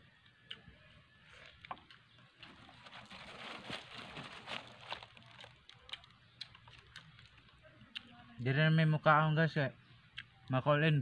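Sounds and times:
chewing and lip-smacking: 0:05.0 - 0:08.1, 0:10.1 - 0:10.4.

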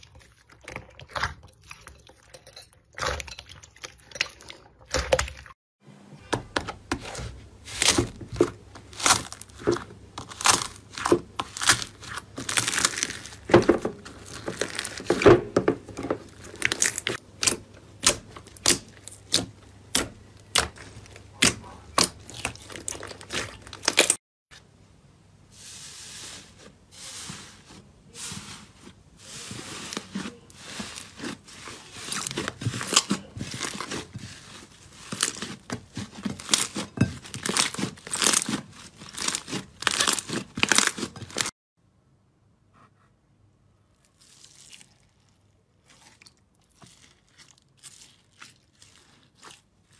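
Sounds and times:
soft crinkling of slime: 0:07.1 - 0:15.3, 0:25.5 - 0:41.5, 0:43.9 - 0:49.9
slime squishing with sticky clicks: 0:16.2 - 0:24.2.

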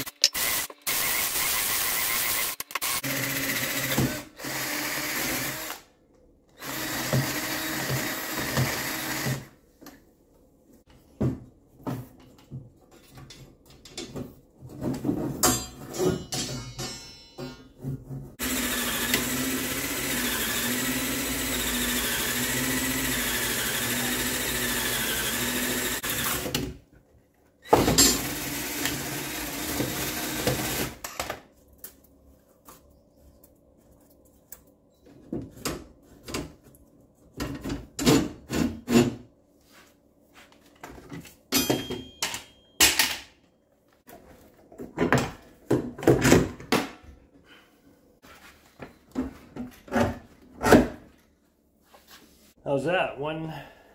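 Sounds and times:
electric drill boring wood: 0:00.0 - 0:05.9, 0:06.6 - 0:09.5, 0:18.4 - 0:26.6, 0:27.7 - 0:31.0.

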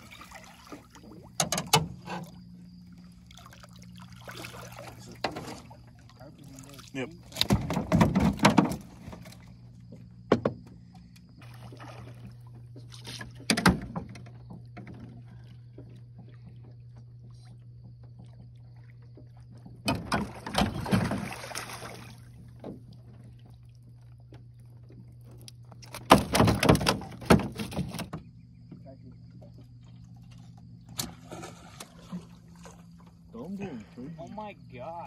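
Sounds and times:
low mechanical hum: 0:00.0 - 0:35.0
knocks on aluminum boat: 0:10.3 - 0:10.7
rushing splashing water: 0:20.4 - 0:22.2.

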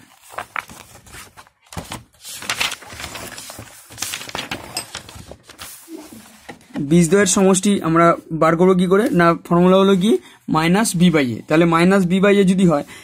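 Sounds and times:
paper rustling: 0:00.0 - 0:07.6.

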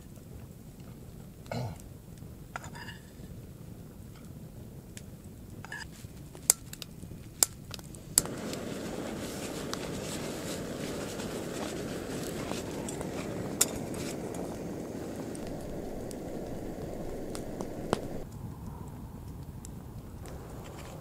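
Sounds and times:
campfire crackling: 0:00.0 - 0:21.0
steady hiss: 0:07.3 - 0:18.3, 0:20.2 - 0:21.0.

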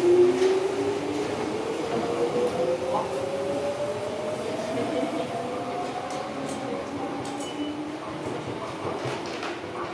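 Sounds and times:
train rumbling on rails: 0:00.0 - 0:09.9.

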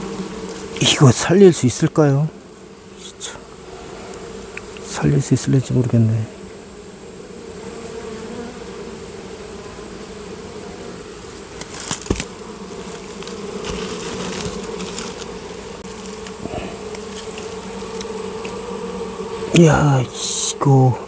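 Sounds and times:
hive rustling: 0:00.0 - 0:21.0
honeybees buzzing: 0:00.0 - 0:21.0
sharp knock on hive: 0:11.5 - 0:12.6, 0:13.4 - 0:15.0.

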